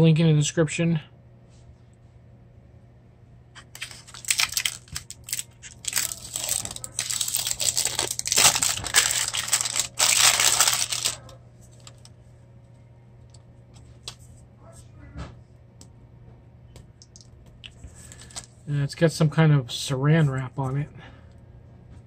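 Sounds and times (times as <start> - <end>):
plastic wrap crinkling and tearing: 3.6 - 12.1.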